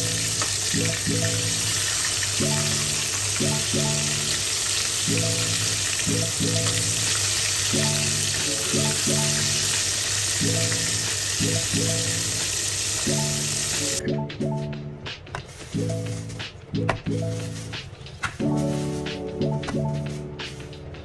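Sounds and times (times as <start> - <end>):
chicken sizzling in hot oil: 0.0 - 14.0
background music: 0.0 - 21.0.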